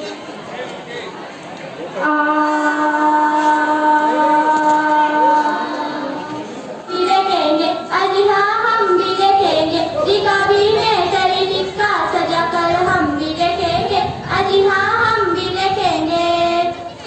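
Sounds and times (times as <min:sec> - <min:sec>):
girls singing together: 0:02.3 - 0:17.0
held chord: 0:05.7 - 0:11.6.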